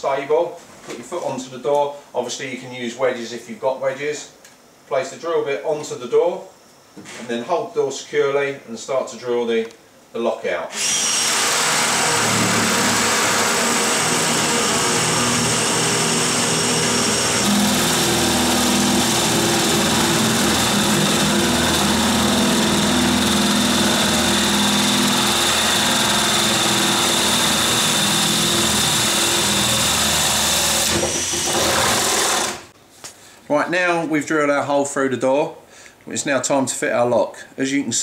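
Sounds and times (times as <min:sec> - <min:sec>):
drill boring through wood: 0:10.7 - 0:32.7.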